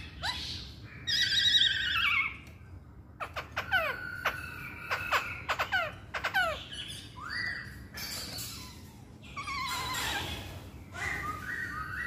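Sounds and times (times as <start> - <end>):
bird singing clear whistles: 7.0 - 7.9, 11.0 - 12.0.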